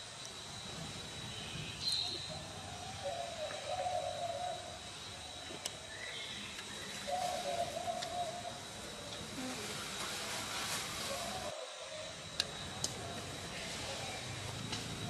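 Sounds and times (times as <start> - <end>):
low hooting animal calls: 2.1 - 9.6.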